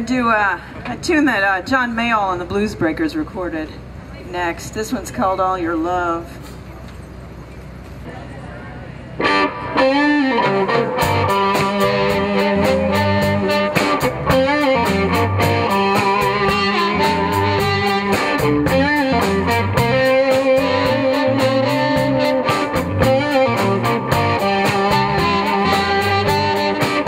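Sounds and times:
electric guitar: 9.1 - 27.0
blues band playing: 9.2 - 27.0
blues harmonica notes: 9.2 - 27.0.

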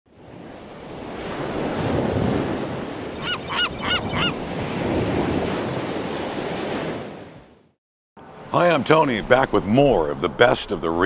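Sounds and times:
ocean surf washing: 0.1 - 11.0
short bird calls: 3.2 - 4.5.

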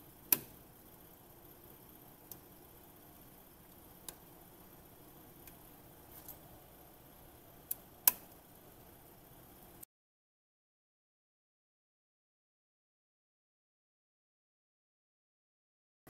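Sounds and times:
small sharp plastic clicks: 7.7 - 8.4.

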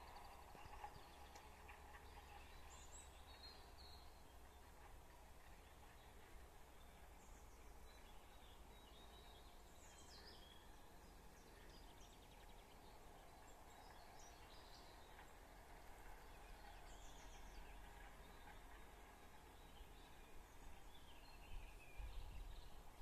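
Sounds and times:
small birds chirping: 5.4 - 23.0.

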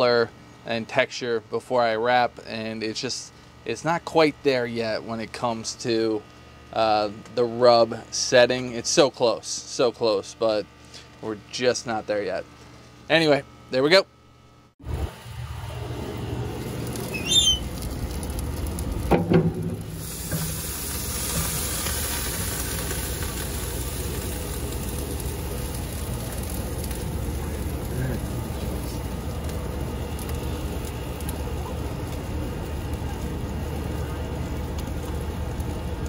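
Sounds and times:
meat sizzling on a grate: 15.8 - 36.0
smoker lid clunking open: 19.0 - 20.7.

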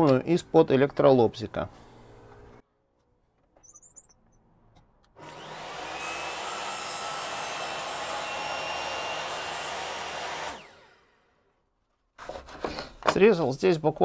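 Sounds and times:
saw blade cutting plywood: 5.2 - 11.2
table saw running: 5.2 - 11.3.

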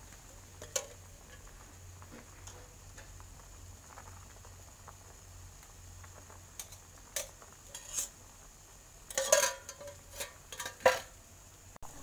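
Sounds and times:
spoon clinking and scraping bowl: 6.6 - 8.1, 9.1 - 11.1.

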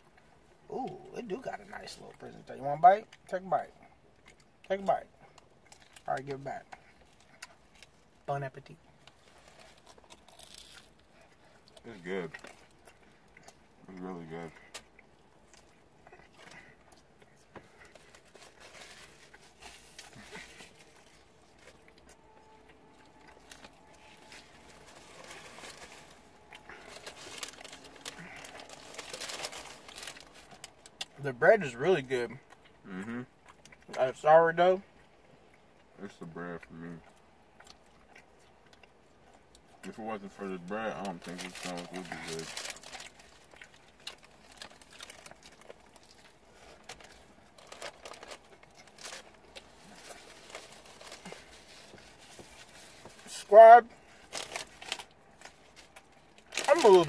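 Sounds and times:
paper wrapper rustling and crinkling: 17.5 - 21.9, 23.0 - 30.9, 41.0 - 57.0
mouth chewing wet smacks: 32.4 - 34.0.

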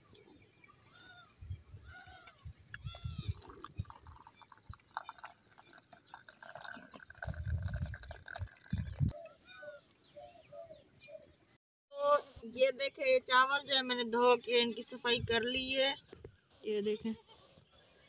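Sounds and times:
tea pouring into a mug: 3.4 - 9.2.

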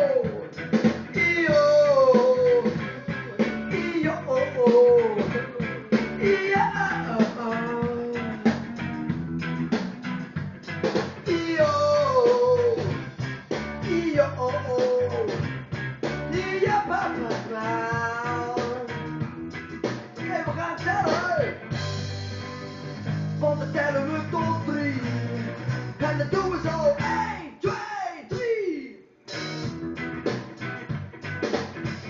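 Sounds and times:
man singing: 0.0 - 8.8, 11.2 - 13.0, 13.8 - 15.4, 16.3 - 19.0, 20.2 - 21.6, 23.4 - 25.2, 26.0 - 29.0
guitar band backing track: 0.0 - 27.4, 29.3 - 32.0.

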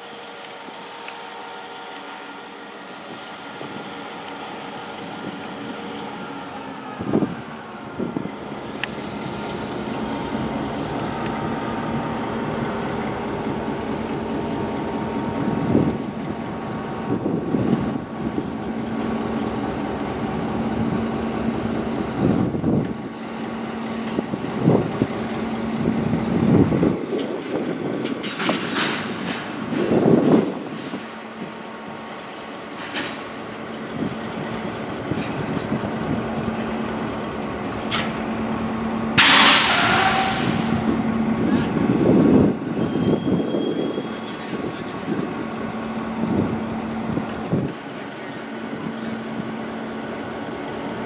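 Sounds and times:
diesel locomotive engine droning: 0.0 - 51.0
clunks: 27.1 - 31.1, 32.7 - 33.8, 37.6 - 38.6.

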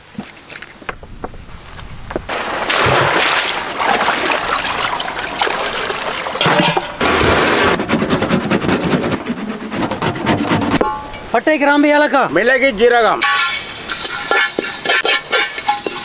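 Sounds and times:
water pouring and splashing: 2.3 - 7.6, 13.2 - 16.0.

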